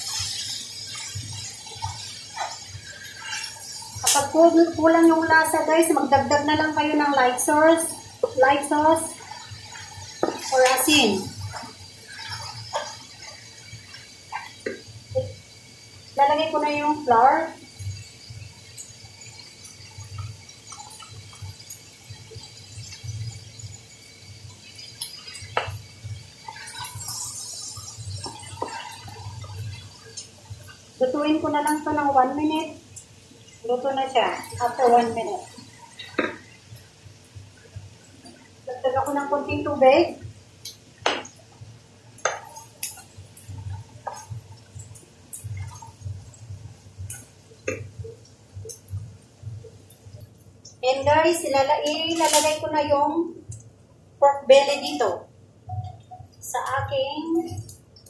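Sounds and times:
batter hissing in hot pan: 0:00.0 - 0:49.8
spatula knocking against pan: 0:41.0 - 0:41.3.

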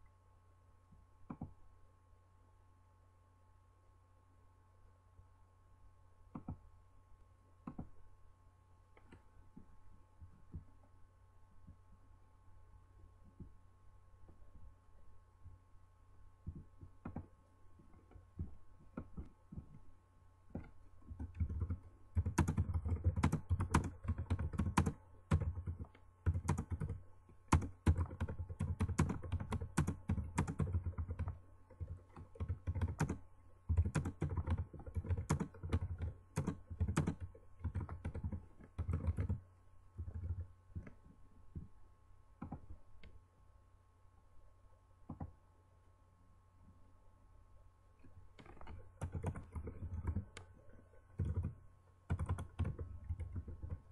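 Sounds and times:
faint steady hum: 0:00.0 - 0:53.9
typing on a keyboard: 0:16.5 - 0:17.3, 0:20.5 - 0:39.4, 0:40.0 - 0:41.0, 0:42.4 - 0:42.7, 0:48.4 - 0:53.9.

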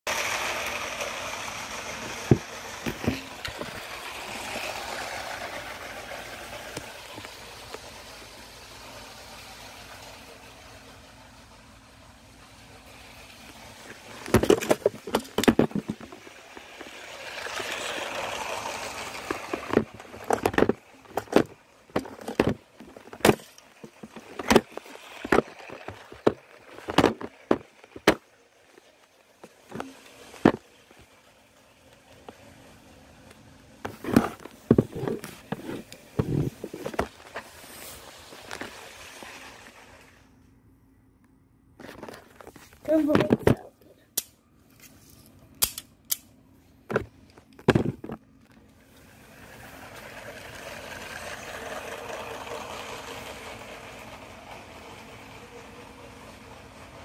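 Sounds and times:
hiss: 0:00.1 - 0:14.1.

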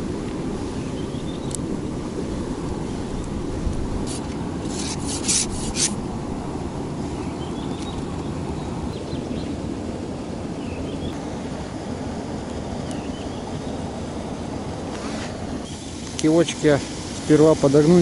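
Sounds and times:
low outdoor rushing: 0:00.0 - 0:18.0
rustling scrapes of fishing line: 0:04.0 - 0:06.0, 0:14.9 - 0:17.4.

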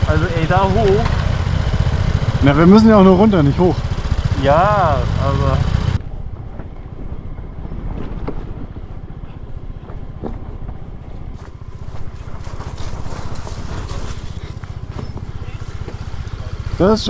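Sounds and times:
motor scooter engine running: 0:00.0 - 0:06.0, 0:11.2 - 0:17.0.

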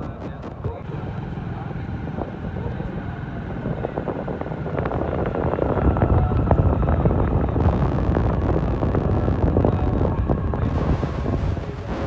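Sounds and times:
vehicle engine and road noise: 0:00.0 - 0:12.0
wind buffeting microphone: 0:00.0 - 0:12.0.

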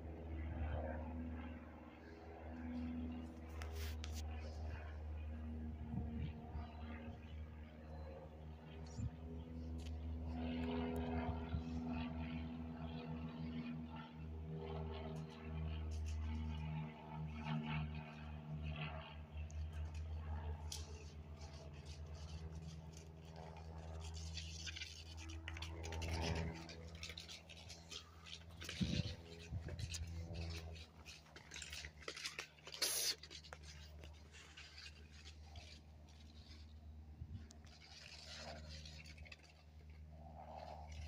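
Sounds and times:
low hum: 0:00.0 - 0:41.0
handling noise scratching: 0:20.7 - 0:39.9.

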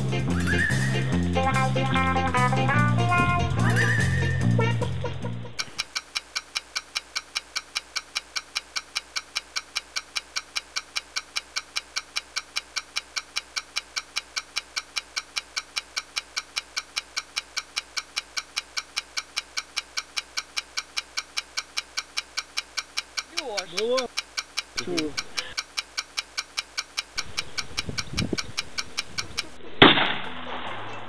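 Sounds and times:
fast clock-like ticking: 0:05.5 - 0:29.7.

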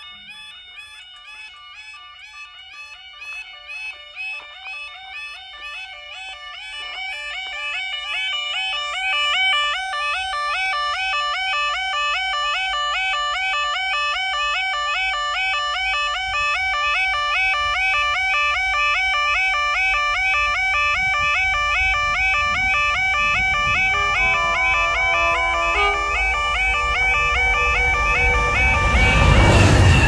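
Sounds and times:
level crossing alarm yodelling tone: 0:00.0 - 0:30.0
diesel locomotive rumble: 0:19.1 - 0:30.0.

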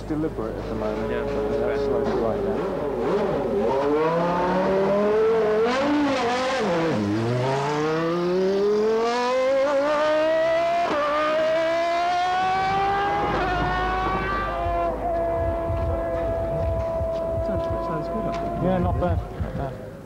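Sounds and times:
racing car engine accelerating: 0:00.5 - 0:19.6.

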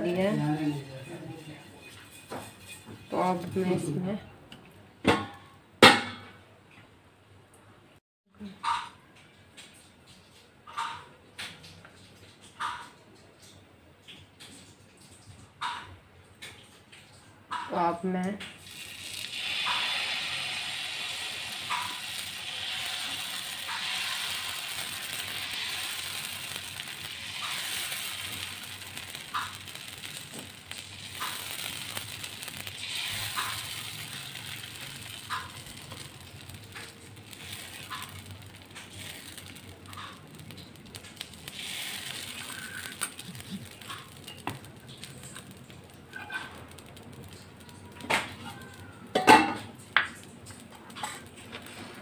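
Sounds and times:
batter sizzling on a hot pan: 0:00.0 - 0:04.3, 0:14.0 - 0:52.0
metal scraping on pan: 0:00.0 - 0:04.3, 0:18.6 - 0:52.0.

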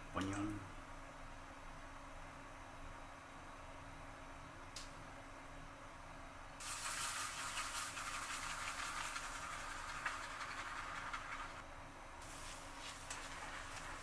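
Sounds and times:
shaving brush swishing on skin: 0:06.6 - 0:11.6, 0:12.2 - 0:14.0.

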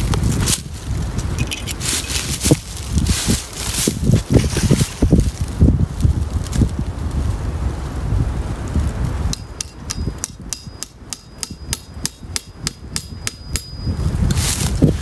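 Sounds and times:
wind buffeting microphone: 0:00.0 - 0:15.0
hammer striking metal spout: 0:09.3 - 0:13.9.

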